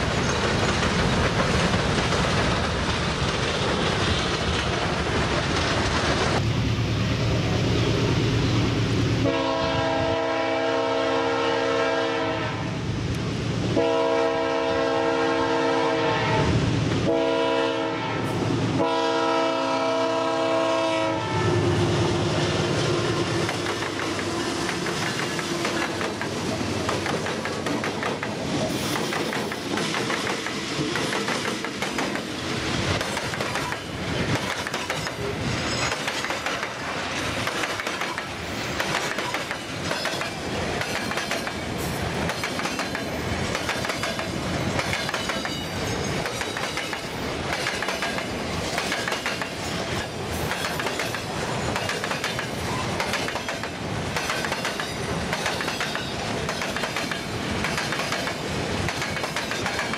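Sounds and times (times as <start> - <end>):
wheels clacking on rail joints: 0.0 - 6.4, 23.2 - 59.9
locomotive air horn blasts: 9.2 - 12.8, 13.8 - 22.3.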